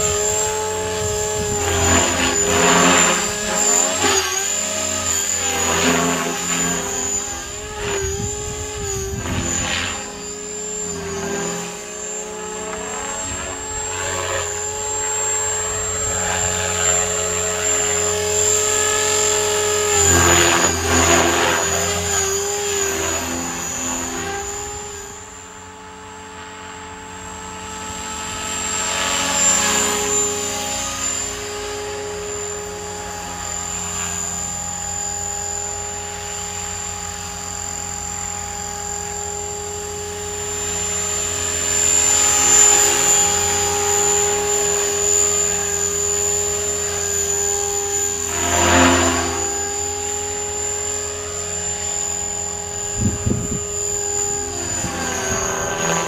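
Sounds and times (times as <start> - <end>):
rotor blade whoosh: 0.0 - 25.4, 40.3 - 56.0
model helicopter motor whine: 0.0 - 56.0.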